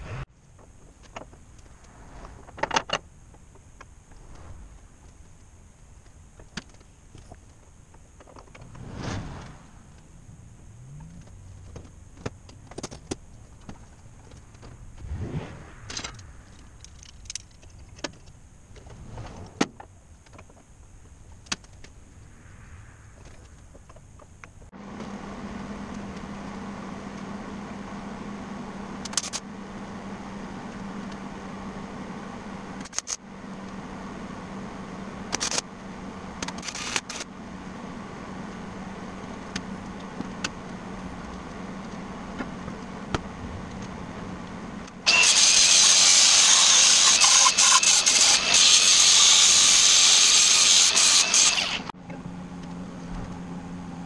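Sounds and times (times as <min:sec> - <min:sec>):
steady low hum: 0:00.0 - 0:36.4.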